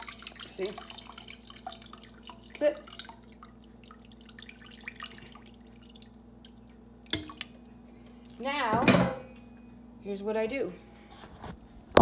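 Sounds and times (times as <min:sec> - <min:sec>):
broth dripping into a pot: 0:00.0 - 0:08.4.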